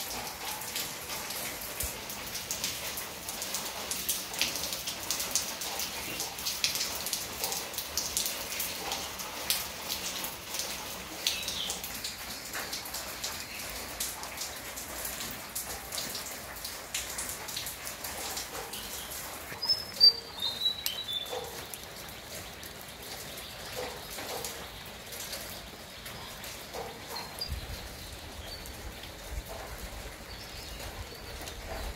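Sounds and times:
rain dripping on leaves: 0.0s - 31.9s
high chirps: 19.6s - 21.3s.

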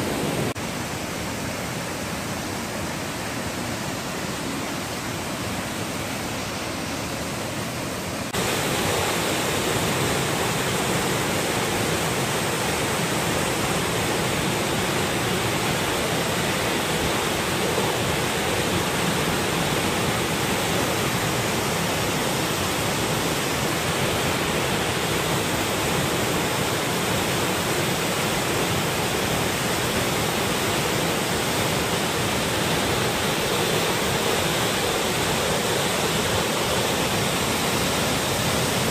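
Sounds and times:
waterfall rushing into a pool: 0.0s - 38.9s.

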